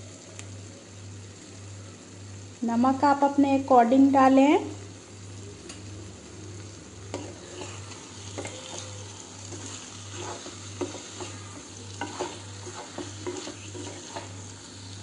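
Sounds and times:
frying sizzle: 0.0s - 15.0s
spatula scraping pan: 7.1s - 15.0s.

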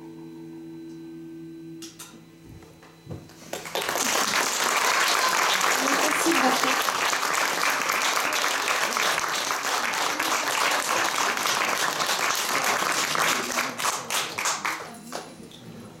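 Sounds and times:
audience applauding: 3.4s - 15.0s.

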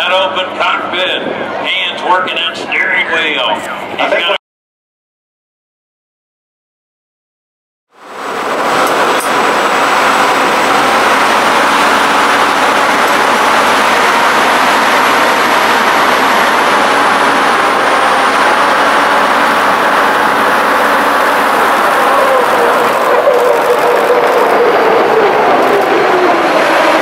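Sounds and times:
high turbine whine: 8.0s - 27.0s
hydroplane rushing at speed: 8.0s - 27.0s.

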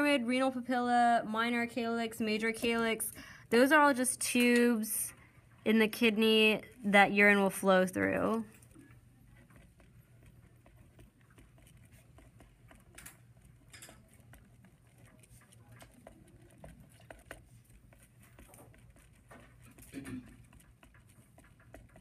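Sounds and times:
low electrical hum: 0.0s - 22.0s
pen scratching on paper: 8.5s - 22.0s.

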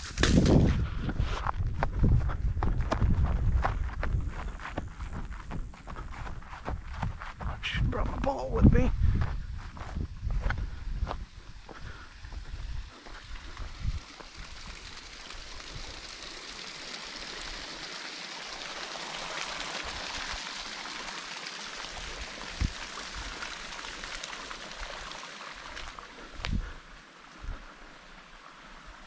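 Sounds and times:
flowing water rushing: 11.4s - 29.0s.

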